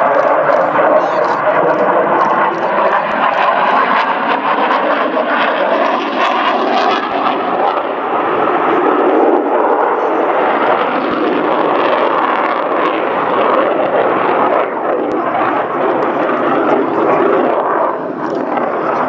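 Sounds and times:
fighter jet engine roar: 0.0s - 19.0s.

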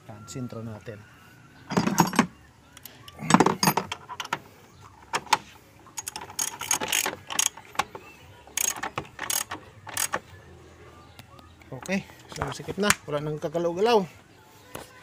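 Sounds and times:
socket wrench clicking and rattling: 6.0s - 10.2s.

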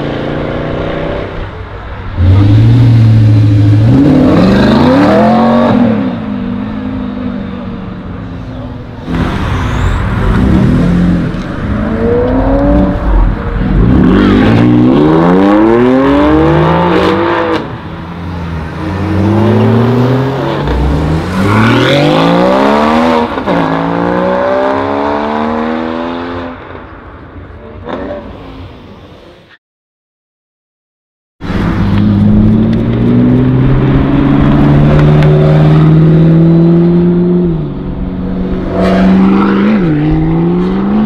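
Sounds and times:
sports car engines accelerating: 0.0s - 9.3s, 31.5s - 41.0s.

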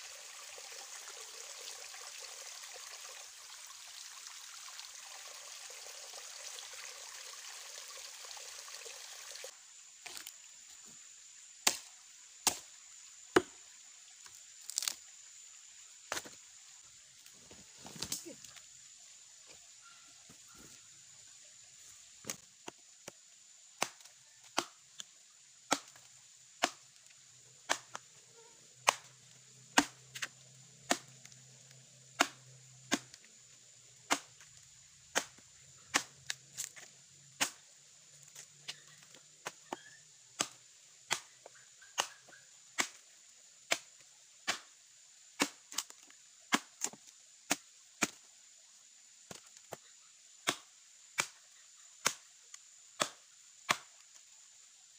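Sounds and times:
axe chopping wood: 11.6s - 12.7s, 23.8s - 24.8s, 25.7s - 26.0s, 26.6s - 26.9s, 27.7s - 28.0s, 28.8s - 30.3s, 30.9s - 31.2s, 32.2s - 33.2s, 34.1s - 34.4s, 35.1s - 36.2s, 37.4s - 37.6s, 39.4s - 41.3s, 42.0s - 43.0s, 44.5s - 44.7s, 45.4s - 45.9s, 46.5s - 48.2s, 50.4s - 51.4s, 52.0s - 52.3s, 53.0s - 53.9s.

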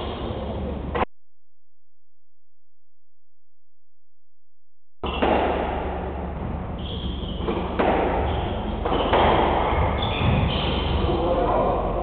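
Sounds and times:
steady low hum: 0.0s - 1.1s, 2.0s - 12.0s
squash ball hitting racquets and walls: 5.0s - 11.5s.

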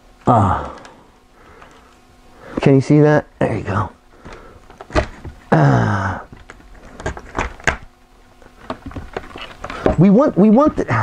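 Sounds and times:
man groaning: 0.2s - 0.9s, 5.5s - 6.4s
wooden knocks and clicks: 8.6s - 10.9s.

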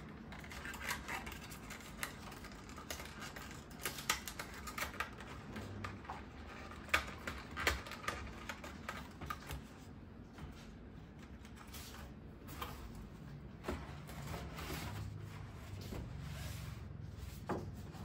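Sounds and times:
cardboard packaging clicks and rustles: 0.0s - 9.9s.

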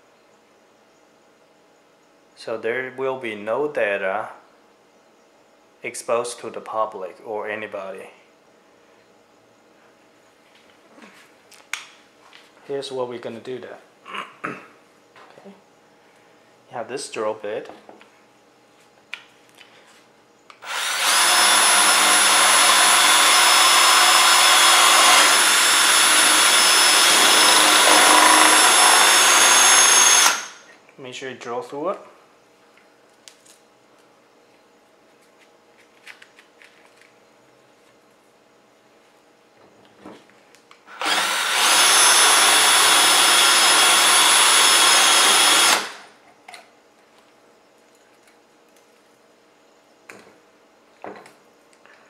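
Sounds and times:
electric drill boring through metal: 20.6s - 30.6s, 40.9s - 46.1s.

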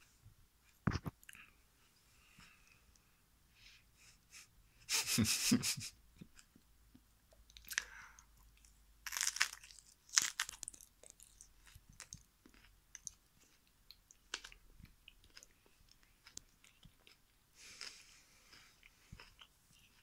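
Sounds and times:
crunchy banana bites: 9.0s - 13.2s.

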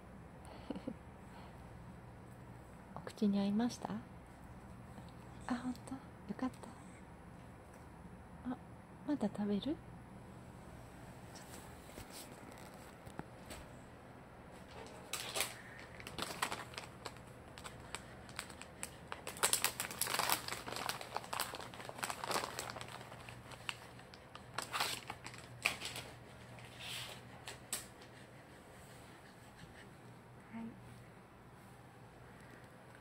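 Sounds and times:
dog chewing crunchy snack: 14.7s - 26.6s.

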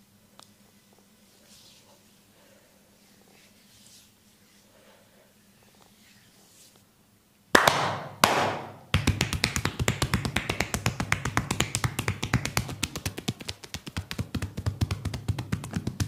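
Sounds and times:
hands slapping body: 7.6s - 16.0s
rapid tapping strokes: 8.3s - 16.0s.

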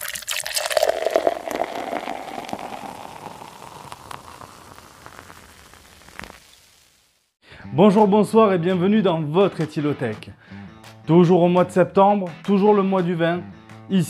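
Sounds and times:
carbonated drink fizzing: 0.0s - 7.1s.

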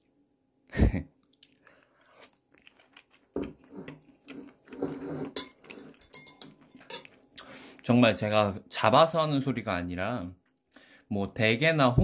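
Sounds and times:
person chewing crab meat: 1.2s - 7.4s.

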